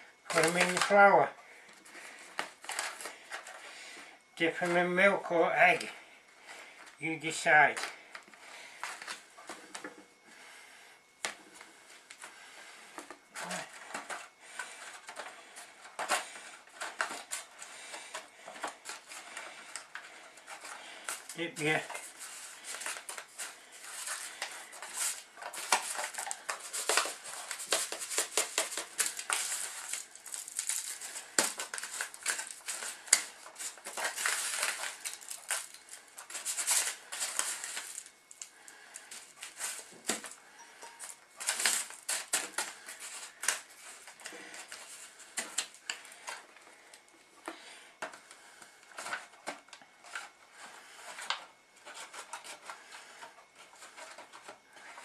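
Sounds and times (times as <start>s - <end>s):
foil crinkling: 0.0s - 10.8s, 11.7s - 55.0s
crumbs crunching: 16.2s - 46.9s.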